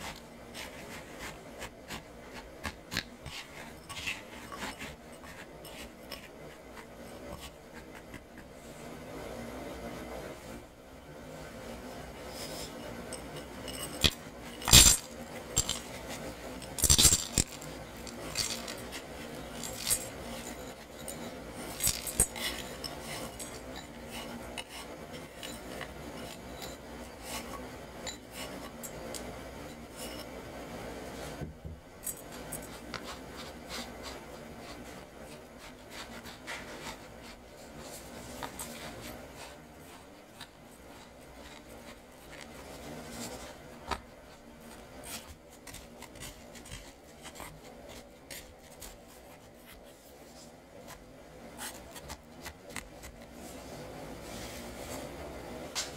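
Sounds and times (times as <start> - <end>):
spatula scraping crumbs: 0.0 - 10.1, 12.2 - 30.4, 32.1 - 55.1
glass bowl clinking: 13.0 - 15.9, 16.6 - 26.9.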